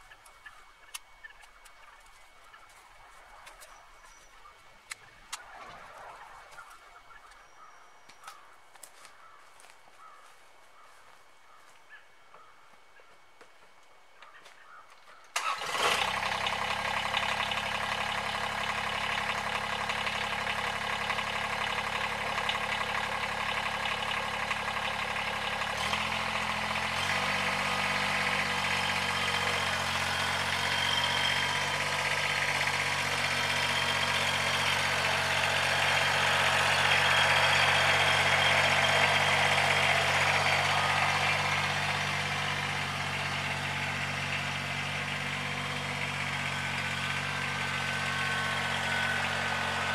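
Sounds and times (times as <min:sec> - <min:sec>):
tractor diesel engine running: 0:00.0 - 0:11.7, 0:14.2 - 0:49.9.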